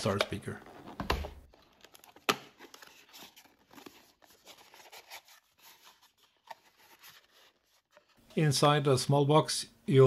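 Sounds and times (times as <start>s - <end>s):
cardboard rustling and scraping: 0.7s - 8.2s.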